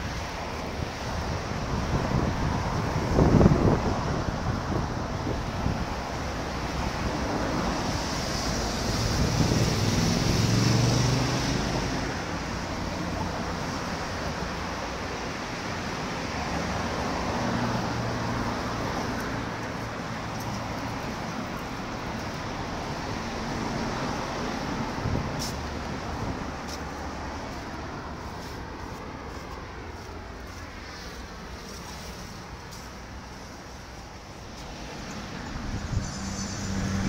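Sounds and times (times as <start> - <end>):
road traffic passing: 0.0 - 37.0
vehicle passing loudly: 7.0 - 12.6, 34.8 - 37.0.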